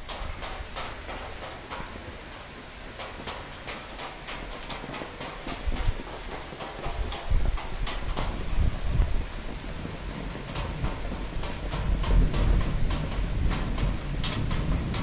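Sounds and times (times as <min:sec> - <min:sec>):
drops ticking on a surface: 0:00.0 - 0:15.0
rain falling steadily: 0:00.0 - 0:15.0
thunder rumbling: 0:05.5 - 0:15.0.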